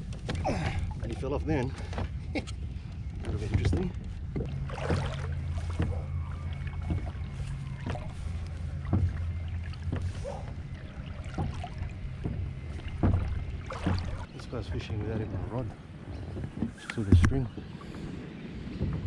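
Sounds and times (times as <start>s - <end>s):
kayak moving on water: 0.0s - 19.0s
short knocks: 8.8s - 10.6s, 11.2s - 14.3s.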